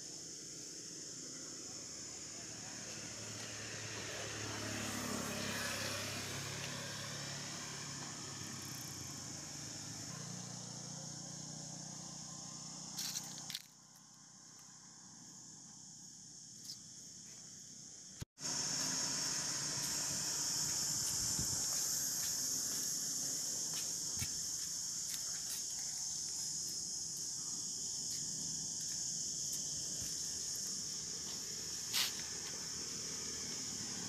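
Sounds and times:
insects trilling: 0.0s - 34.0s
vehicle passing: 2.4s - 12.9s, 31.0s - 34.0s.

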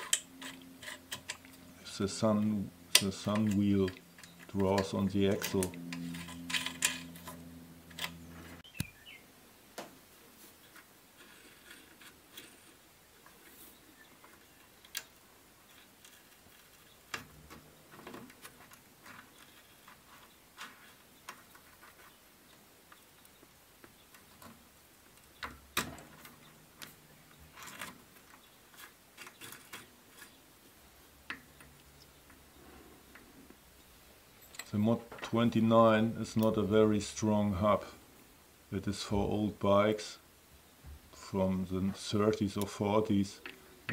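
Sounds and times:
small steel parts clicking: 0.0s - 1.7s, 2.3s - 8.2s.

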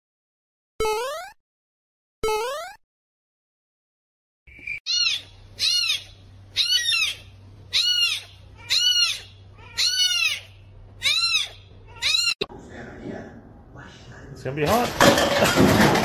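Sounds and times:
kitten meowing: 4.9s - 12.5s.

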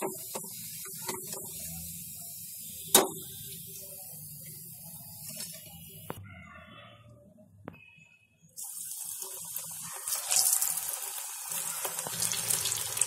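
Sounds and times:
batter sizzling in hot oil: 8.6s - 13.0s.

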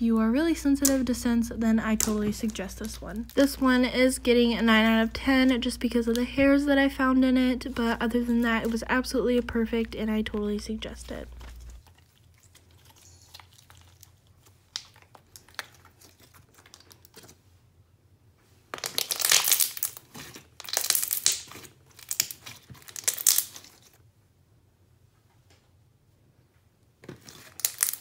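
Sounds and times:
slime crackling and popping: 0.6s - 17.4s, 18.7s - 24.0s, 27.1s - 28.0s.

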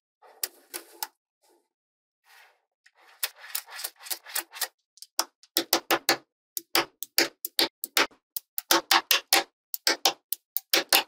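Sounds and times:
magnetic balls clicking: 6.6s - 11.0s.

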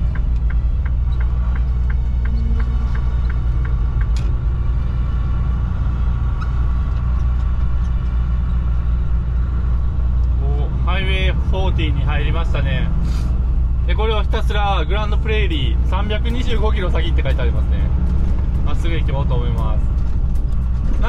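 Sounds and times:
turn signal ticking: 0.0s - 5.4s, 6.2s - 9.0s
truck engine and road rumble: 0.0s - 21.0s.

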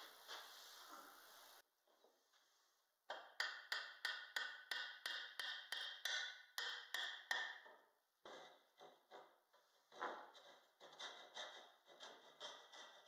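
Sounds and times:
hammer tapping wooden dowel: 3.1s - 7.9s.

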